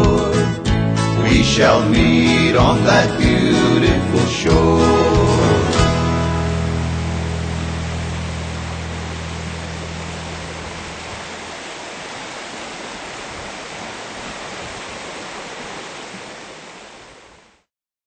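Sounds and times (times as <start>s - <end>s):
string band chord: 0.8s - 11.3s
mountain creek rushing: 1.2s - 17.7s.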